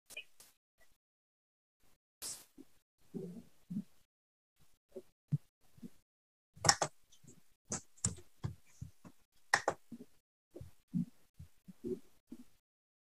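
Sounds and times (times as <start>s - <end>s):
mouse and keyboard clicks: 6.6s - 7.0s, 9.6s - 9.8s.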